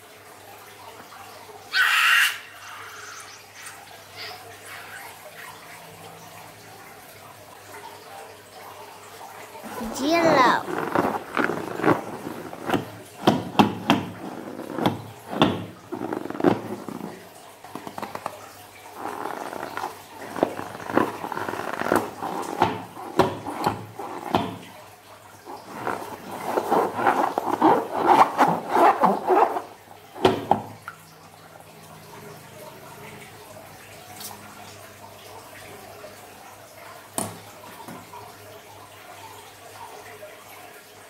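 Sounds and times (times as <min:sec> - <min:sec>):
slime balloon squishing: 0:09.7 - 0:17.2, 0:19.0 - 0:24.6, 0:25.5 - 0:30.6.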